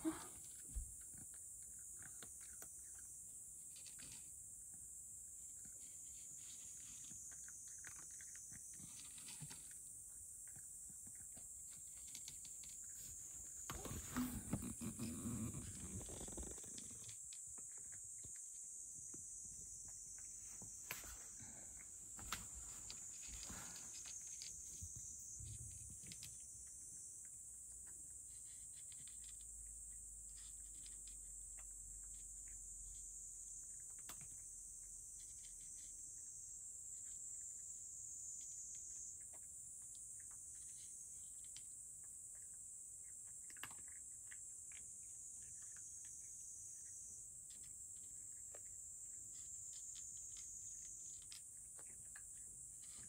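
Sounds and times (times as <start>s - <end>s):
cat crunching kibble: 0.0s - 4.3s, 5.5s - 18.4s, 42.3s - 46.2s.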